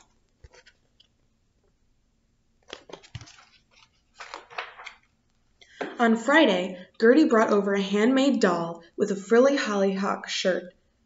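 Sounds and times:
paper pages rustling: 0:00.0 - 0:01.2, 0:02.6 - 0:05.2.

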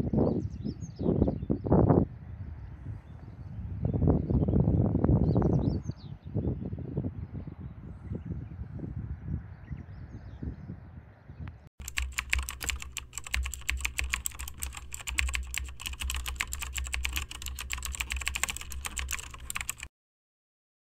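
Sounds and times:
faint wind noise: 0:00.0 - 0:11.6
fast irregular clicks: 0:11.8 - 0:19.9.

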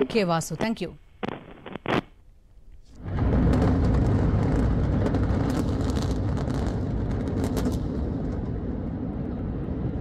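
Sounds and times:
sharp crackles: 0:00.6 - 0:10.0
buildings collapsing rumble: 0:03.0 - 0:10.0.

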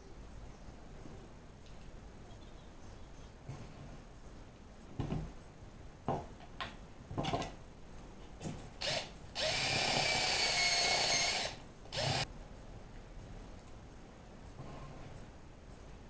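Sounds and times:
cordless drill boring plastic: 0:08.8 - 0:12.2.

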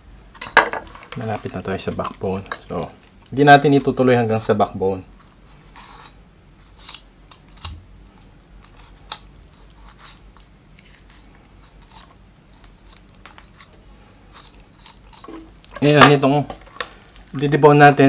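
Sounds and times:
knife scraping bone: 0:05.3 - 0:07.8, 0:08.6 - 0:15.8.

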